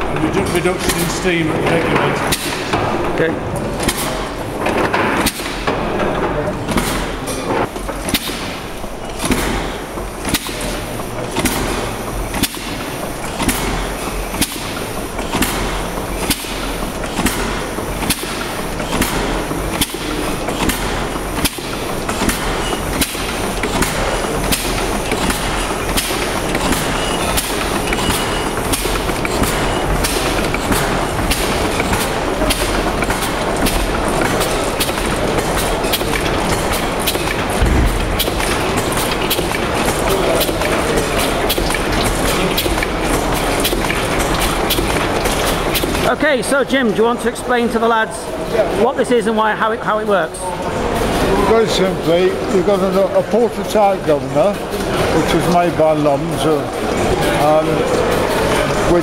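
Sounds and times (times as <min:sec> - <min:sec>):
steam engine clatter: 0:03.8 - 0:46.8
valve gear clicking: 0:07.8 - 0:46.1.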